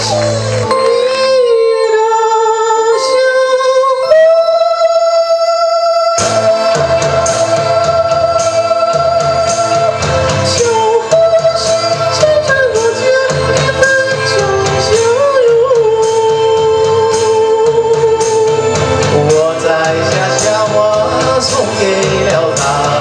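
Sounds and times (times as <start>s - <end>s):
backing band with drums: 6.2s - 23.0s.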